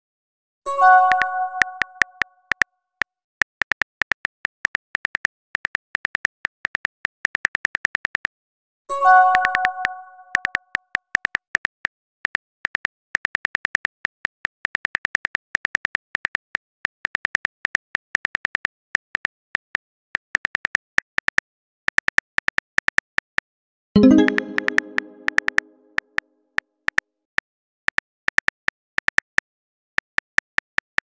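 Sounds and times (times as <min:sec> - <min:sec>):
phone keyboard clicks: 0:01.1 - 0:02.6, 0:09.3 - 0:10.6
message alert chime: 0:24.0 - 0:25.9.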